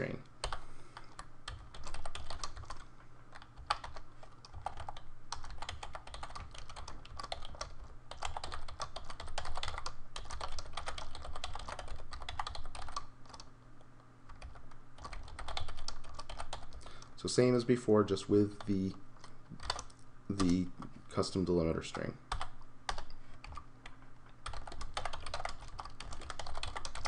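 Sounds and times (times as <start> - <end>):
fast typing on keyboard: 0.4 - 13.5, 14.3 - 17.0, 19.6 - 20.7, 22.3 - 23.6, 24.4 - 27.0.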